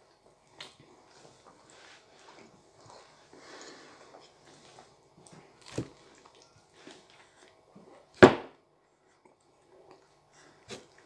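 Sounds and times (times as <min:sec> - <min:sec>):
faint chewing: 0:00.0 - 0:08.1, 0:08.8 - 0:11.0
sniffing and breathing: 0:01.0 - 0:05.0.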